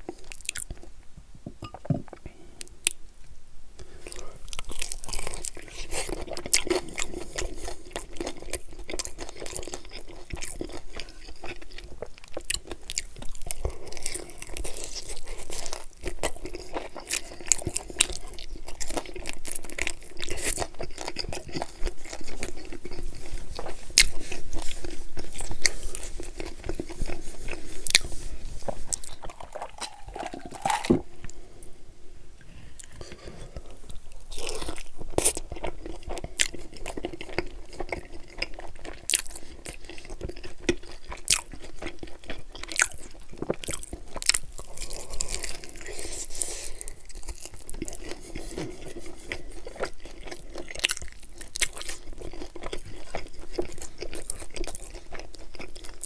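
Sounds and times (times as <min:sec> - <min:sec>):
chewing and biting chicken wings: 0:04.5 - 0:28.1, 0:28.9 - 0:31.0, 0:34.3 - 0:56.0
person drinking from a cup: 0:28.0 - 0:31.4.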